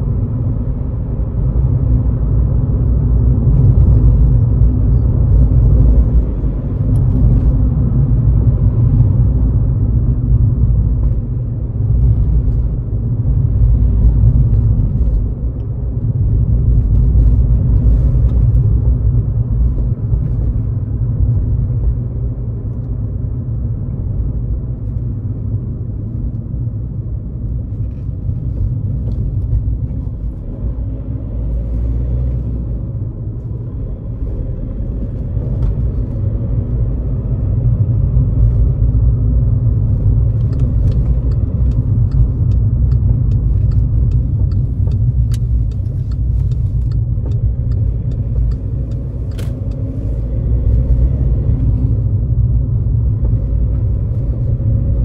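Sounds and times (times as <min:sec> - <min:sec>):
car engine and tyres rumbling: 0:00.0 - 0:55.0.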